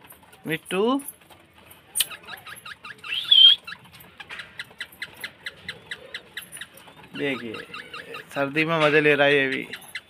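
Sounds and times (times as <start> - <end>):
parakeet chirping: 2.0 - 8.6, 9.2 - 10.0
parakeet squawk: 4.4 - 8.4.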